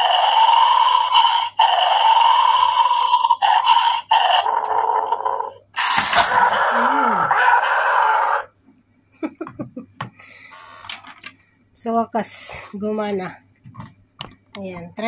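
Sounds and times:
toy dog electronic barking: 0.0 - 8.5
toy lunge mechanism: 5.8 - 6.6.

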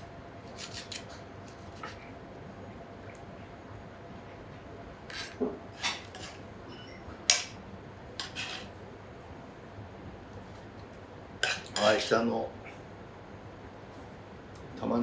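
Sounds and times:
knife and fork scraping a plate: 0.4 - 2.1, 5.1 - 7.0, 8.2 - 8.8, 11.4 - 12.0.

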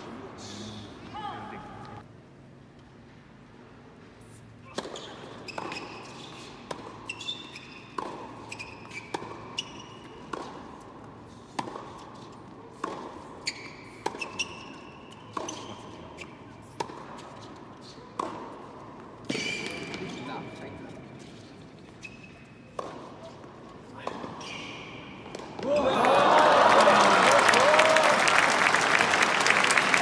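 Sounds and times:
shoes squeaking on court: 4.2 - 25.8
tennis ball bounces: 4.7 - 20.2, 22.7 - 24.5.

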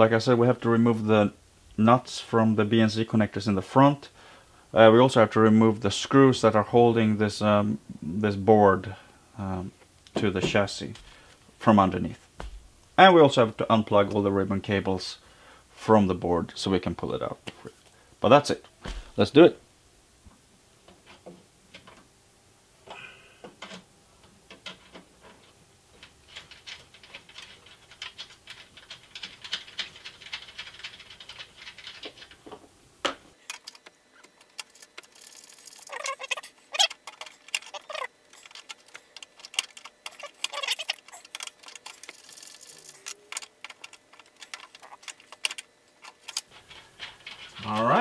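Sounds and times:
loose metal nuts rattling: 33.4 - 48.0
wrench clicking and scraping on nuts: 33.4 - 48.0.

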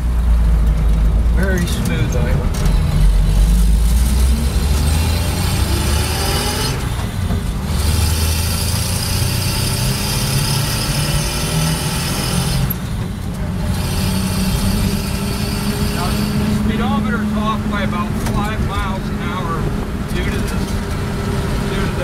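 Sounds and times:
road noise: 0.0 - 22.0
truck engine drone from cab: 0.0 - 22.0.

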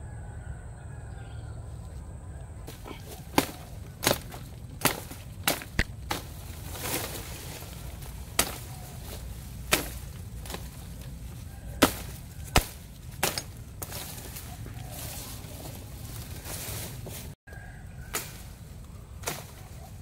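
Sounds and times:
machete chopping brush: 2.7 - 7.2, 8.2 - 11.0, 11.8 - 14.2, 19.2 - 19.7.

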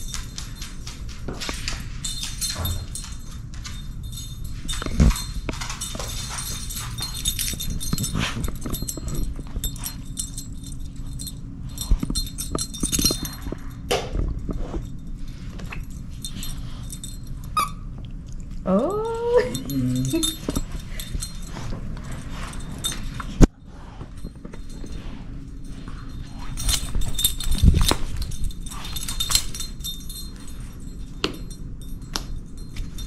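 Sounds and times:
bell and tags jingling: 0.0 - 17.9, 18.7 - 33.0.

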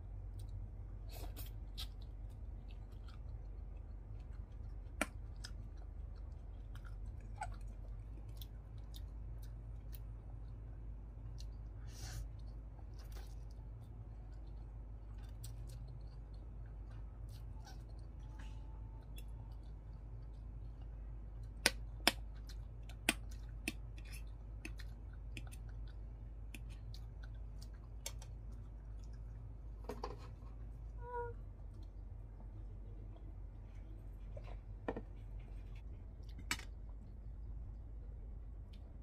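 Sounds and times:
steady low hum: 0.0 - 39.0
chewing and mouth clicks: 0.1 - 29.8.

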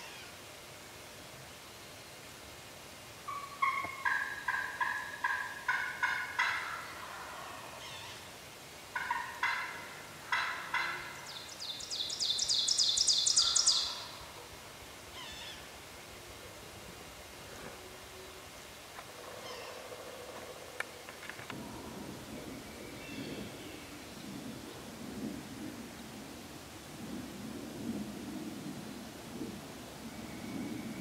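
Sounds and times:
turkey yelping: 3.3 - 7.5, 9.0 - 11.2.

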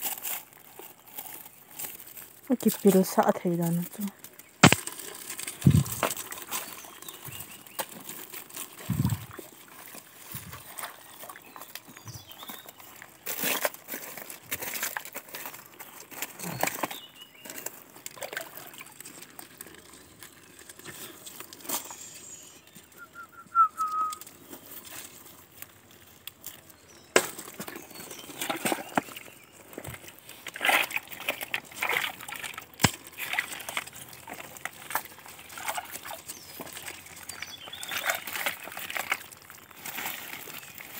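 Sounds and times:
hands rustling through dry leaves: 0.0 - 40.9
hands scraping in muddy water: 4.3 - 22.1, 27.5 - 40.9
stones knocking: 4.6 - 6.5, 8.8 - 9.5.

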